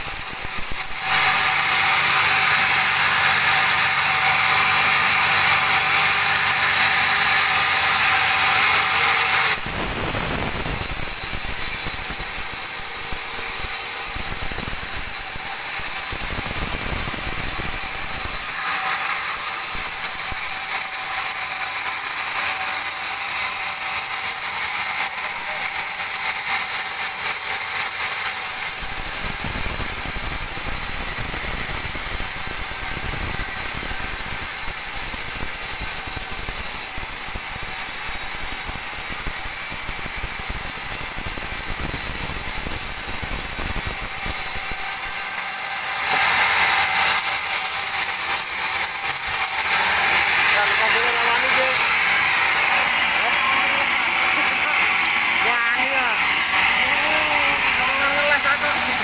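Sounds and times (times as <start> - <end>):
band saw cutting log: 0.0 - 59.0.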